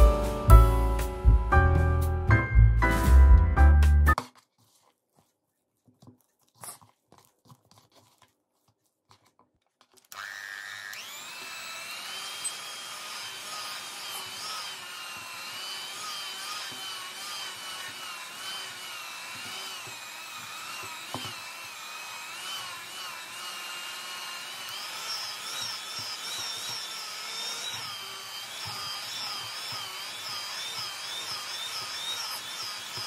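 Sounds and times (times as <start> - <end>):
electric hand mixer whining: 10.1 - 33.0.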